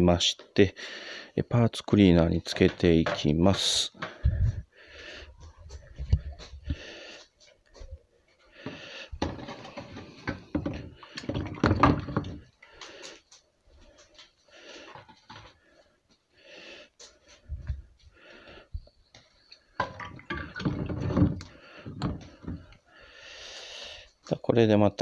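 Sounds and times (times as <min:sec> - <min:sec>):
liquid sloshing in plastic tub: 0:09.2 - 0:12.8, 0:19.8 - 0:22.8.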